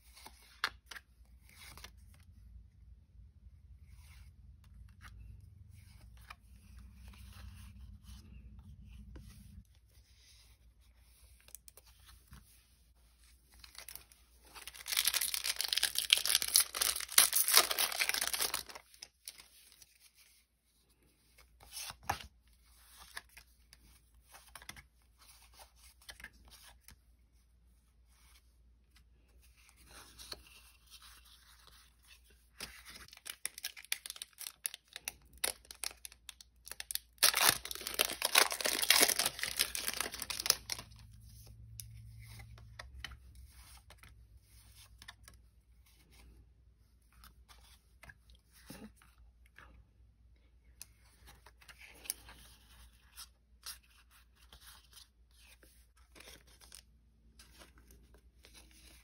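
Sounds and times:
cards rustling: 3.9s - 20.3s, 29.2s - 46.4s
foil wrapper tearing and crinkling: 14.6s - 19.0s, 33.1s - 40.9s.

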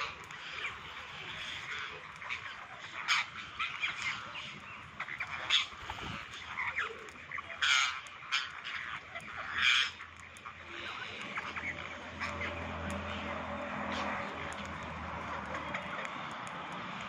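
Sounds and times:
parakeets chattering: 0.0s - 17.0s.

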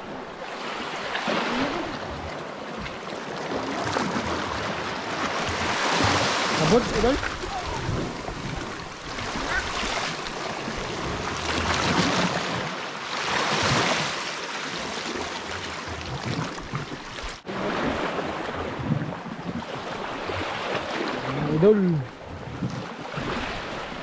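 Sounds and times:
surf washing against rocks: 0.0s - 24.0s
wind buffeting microphone: 6.8s - 11.3s.

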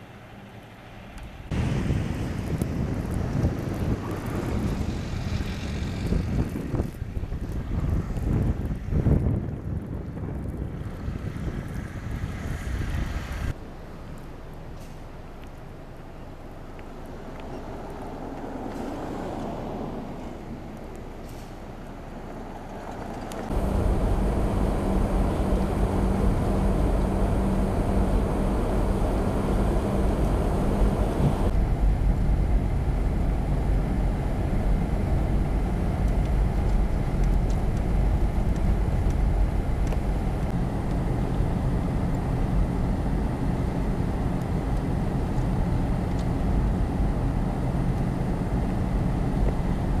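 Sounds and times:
vehicle engine and tyre rumble: 0.0s - 50.0s
steady low hum: 23.5s - 50.0s.

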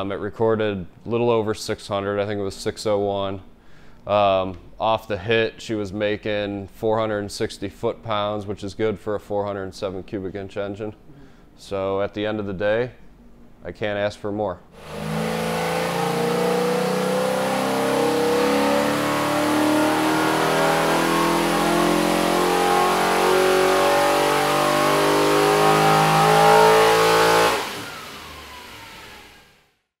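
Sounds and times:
engine revving under load: 14.8s - 29.7s.

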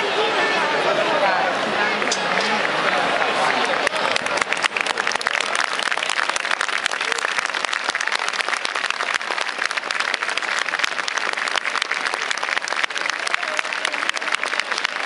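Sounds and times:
crowd applauding: 0.9s - 15.0s.

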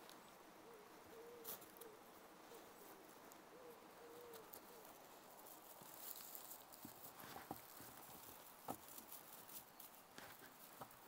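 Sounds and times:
quiet outdoor ambience: 0.0s - 11.0s
pigeon cooing: 0.6s - 5.1s.

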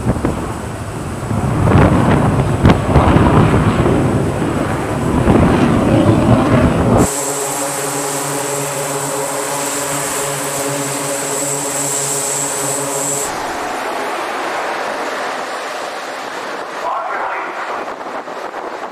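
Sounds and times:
loud low rumble: 0.0s - 18.9s
turboprop engines droning: 0.0s - 18.9s.

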